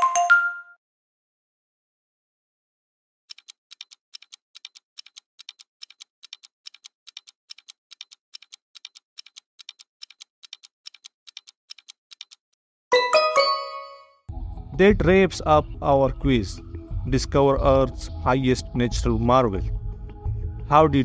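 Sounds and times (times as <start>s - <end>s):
rapid clock-like ticking: 3.3s - 12.4s
bright chime: 12.9s - 14.2s.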